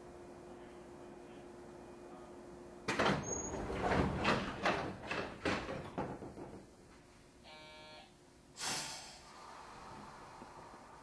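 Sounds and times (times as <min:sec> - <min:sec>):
knocks and rattles: 0:02.9 - 0:06.8.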